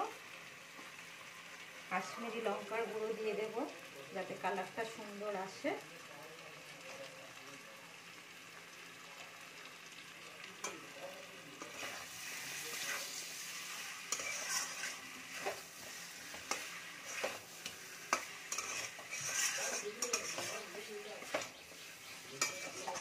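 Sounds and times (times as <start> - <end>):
food sizzling in oil: 0.0 - 23.0
metal spatula scraping pan: 11.6 - 23.0.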